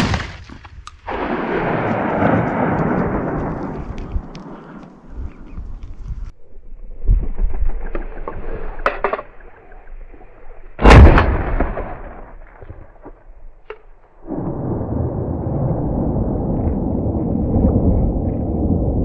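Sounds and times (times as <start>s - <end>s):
shotgun shot: 10.8s - 12.4s.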